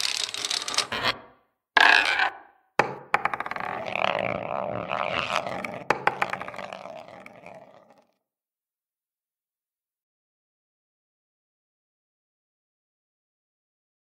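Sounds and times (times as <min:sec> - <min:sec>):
balls rolling along a track: 0:00.0 - 0:08.0.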